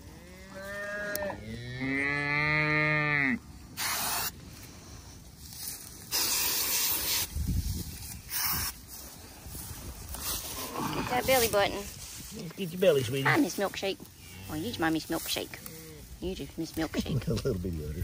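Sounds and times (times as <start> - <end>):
cattle mooing: 0.0 - 3.4
short bursts of hiss: 3.8 - 4.4, 6.0 - 9.0.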